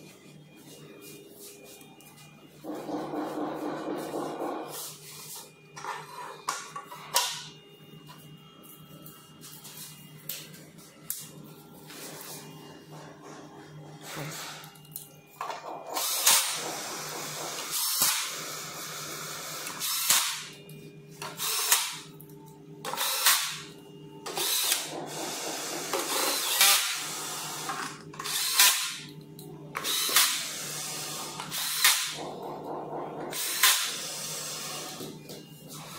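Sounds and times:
cordless drill driving screws: 0:26.1 - 0:26.9.

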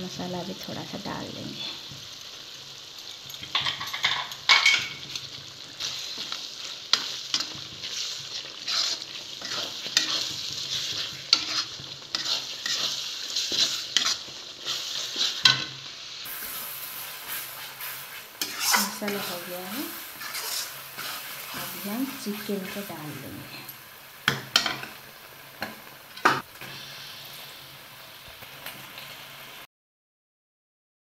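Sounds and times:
spices sizzling in hot oil: 0:00.0 - 0:29.7
spatula scraping a pan: 0:03.3 - 0:22.8.

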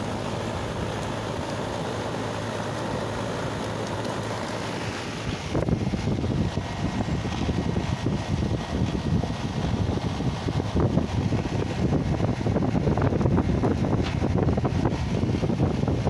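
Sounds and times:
low hum and hiss: 0:00.0 - 0:16.0
wind buffeting microphone: 0:05.2 - 0:16.0.

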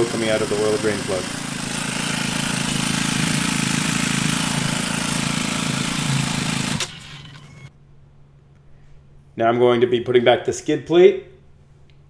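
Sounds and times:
motorcycle engine idling: 0:00.0 - 0:07.7.

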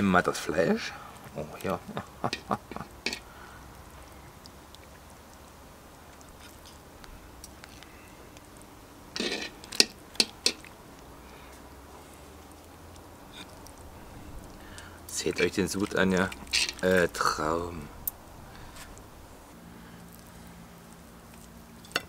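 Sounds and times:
metal utensil clicking on cast iron: 0:02.3 - 0:03.2, 0:09.2 - 0:10.7, 0:16.4 - 0:16.8.

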